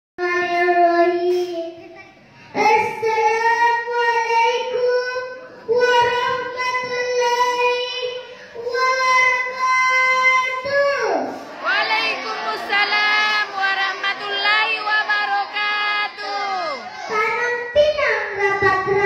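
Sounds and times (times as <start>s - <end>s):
girl singing into microphone: 2.5s - 11.3s, 17.1s - 19.0s.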